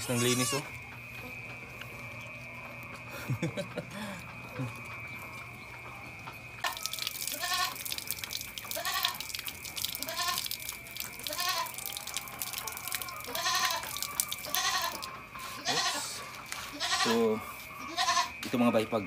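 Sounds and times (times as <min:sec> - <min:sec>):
goat kid bleating: 0:00.0 - 0:00.7, 0:07.3 - 0:07.8, 0:08.7 - 0:09.2, 0:10.0 - 0:10.5, 0:11.2 - 0:11.8, 0:13.2 - 0:17.2, 0:17.8 - 0:18.3
water tap running: 0:06.6 - 0:15.1.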